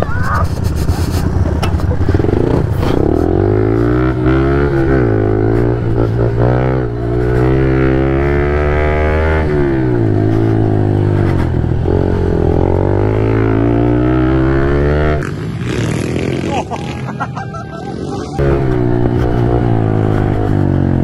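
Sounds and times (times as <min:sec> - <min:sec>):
motorbike engine revving hard: 0:02.1 - 0:17.2.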